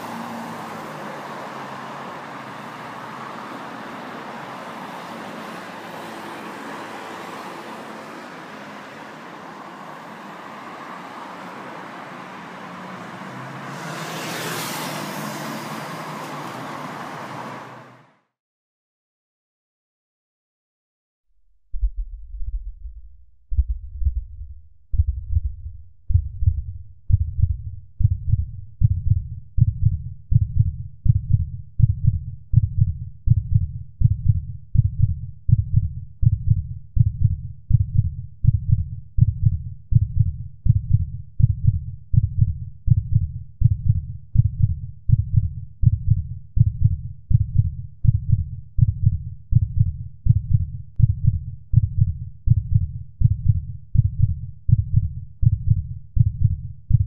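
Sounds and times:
heartbeat thudding: 21.6s - 57.0s.

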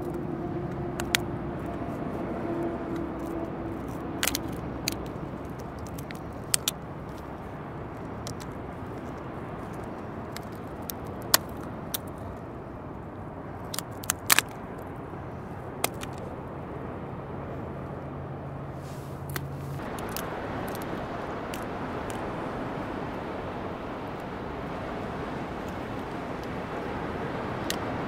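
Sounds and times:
wind: 0.0s - 28.0s
crab shell cracking: 2.9s - 12.4s, 13.6s - 14.6s, 19.3s - 20.9s
surf: 18.6s - 28.0s.

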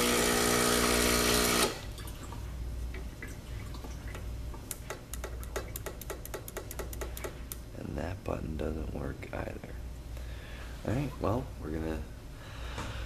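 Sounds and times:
espresso machine pump buzzing: 0.0s - 1.9s.

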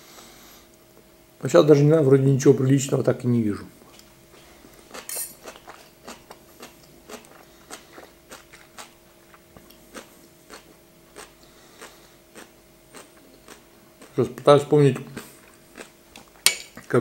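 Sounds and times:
faint steady hum: 0.0s - 17.0s
man chewing food: 3.8s - 16.9s.

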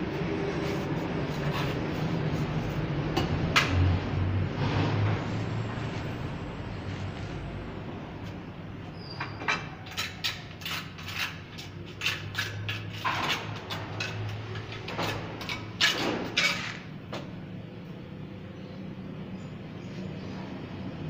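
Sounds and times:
steel trowel scraping on tile: 0.0s - 2.8s, 9.6s - 16.9s.

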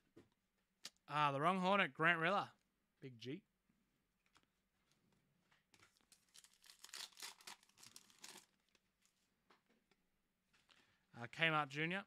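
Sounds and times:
wrapper being ripped open: 6.1s - 8.5s.

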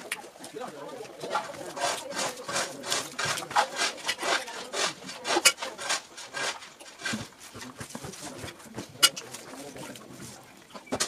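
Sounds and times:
fingers rubbing rice and fish: 1.3s - 10.5s.

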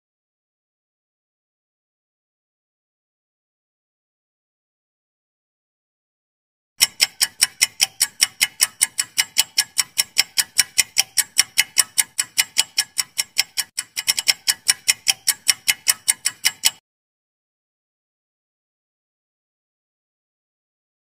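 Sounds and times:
rapid clock-like ticks: 6.8s - 16.8s.

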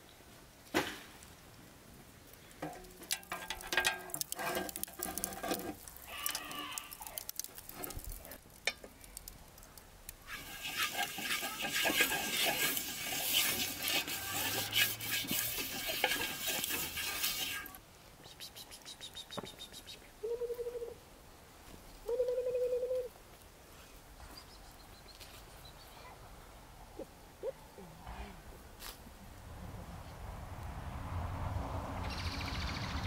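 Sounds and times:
fat sizzling on a hot pan: 2.6s - 17.8s.

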